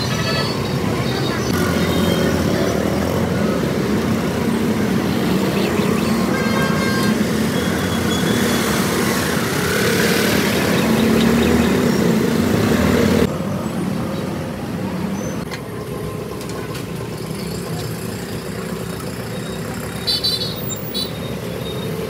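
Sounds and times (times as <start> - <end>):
rickshaw and motorcycle engines: 0.0 - 22.0
horn honking: 6.0 - 8.6.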